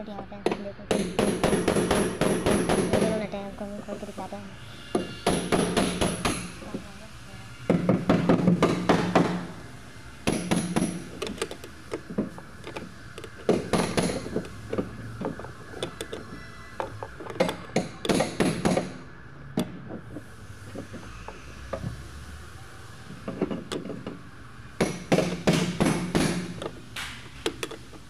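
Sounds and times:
tool clicking and knocking on bolts: 0:00.4 - 0:03.2, 0:05.0 - 0:06.8, 0:10.2 - 0:19.0, 0:23.2 - 0:24.2, 0:24.8 - 0:28.0.

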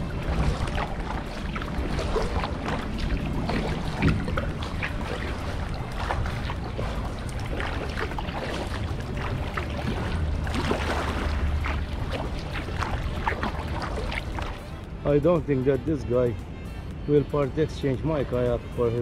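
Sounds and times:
kayak paddle splashing: 0:00.0 - 0:14.9
water trickling off paddle: 0:00.0 - 0:15.8.

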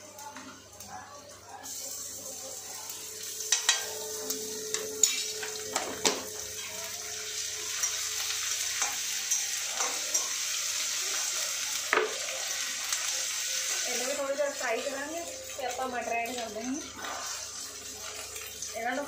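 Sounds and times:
onion sizzling in hot oil: 0:01.5 - 0:19.0
metal spoon scraping and clinking pan: 0:08.8 - 0:10.4.

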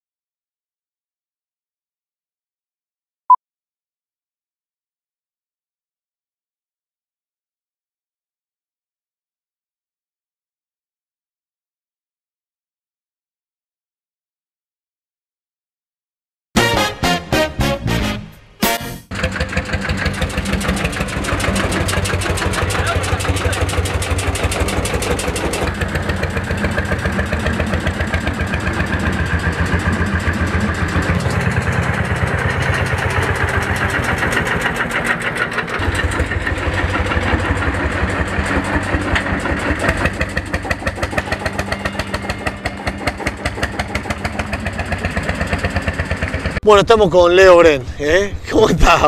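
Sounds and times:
tractor engine running: 0:16.6 - 0:47.7.

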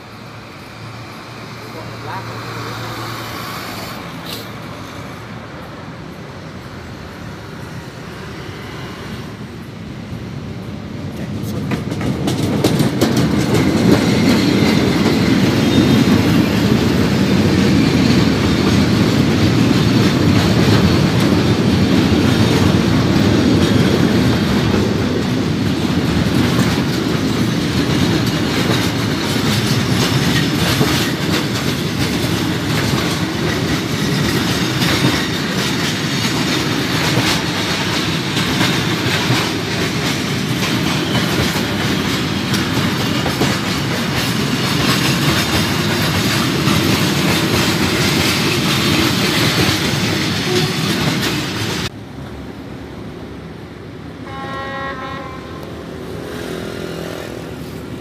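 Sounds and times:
freight train wheels rumbling on rails: 0:00.0 - 0:58.0.

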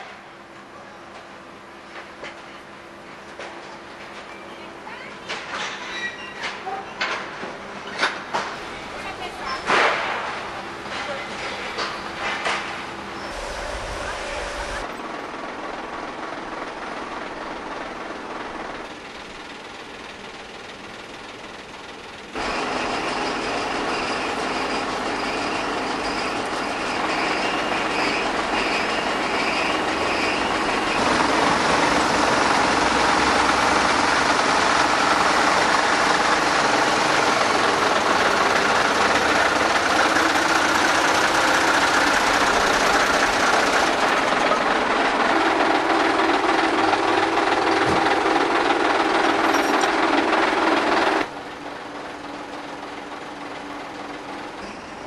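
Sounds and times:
heavy truck engine rumbling: 0:13.0 - 0:15.8, 0:22.4 - 0:54.6
mechanical noise: 0:13.2 - 0:15.0.

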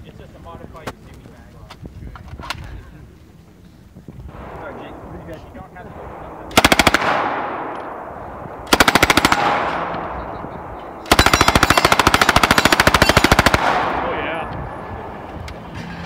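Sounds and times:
gunshot echo: 0:04.3 - 0:15.2
automatic gunfire bursts: 0:05.9 - 0:14.4.

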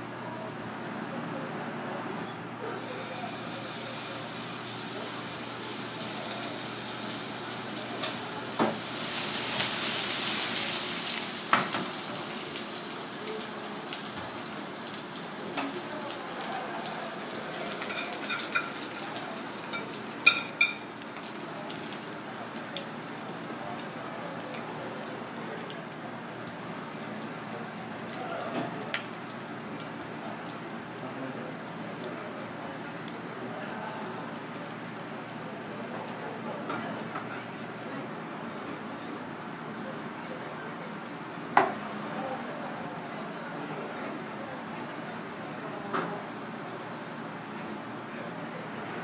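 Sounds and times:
sauce sizzling in pan: 0:02.8 - 0:28.2.

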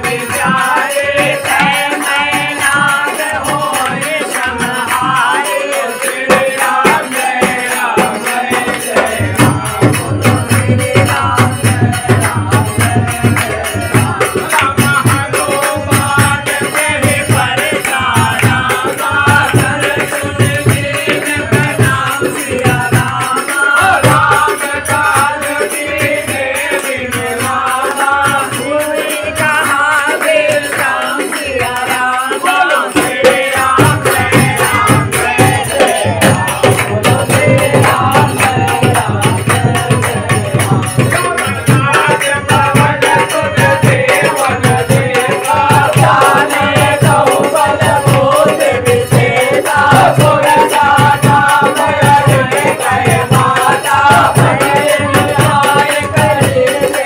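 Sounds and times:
hand drum: 0:00.0 - 0:57.0
men singing in unison: 0:00.0 - 0:57.0
rattling hand percussion: 0:00.0 - 0:57.0
clapping: 0:29.7 - 0:32.3.

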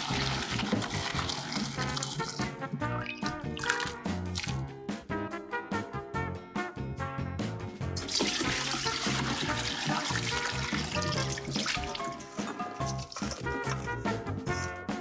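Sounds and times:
water splashing into a colander: 0:00.0 - 0:04.7, 0:08.0 - 0:14.0
background music: 0:00.0 - 0:15.0.

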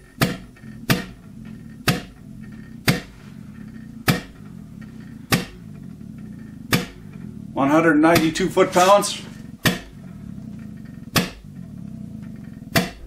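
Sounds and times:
low steady hum: 0:00.0 - 0:13.0
sharp metallic clacks: 0:08.1 - 0:09.9.

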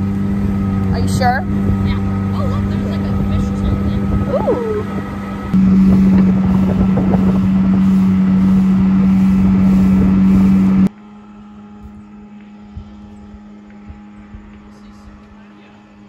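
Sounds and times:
motorboat motor running: 0:00.0 - 0:16.0.

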